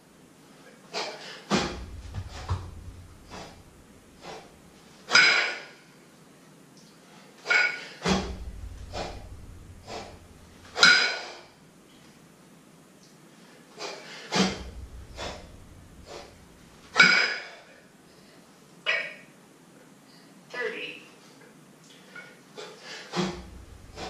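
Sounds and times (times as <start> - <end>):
man breathing forcefully: 1.0 - 4.9, 8.0 - 11.3, 13.7 - 17.5, 22.5 - 24.0
dull low thud: 1.5 - 4.8, 8.1 - 10.8, 14.4 - 17.0, 23.2 - 24.0.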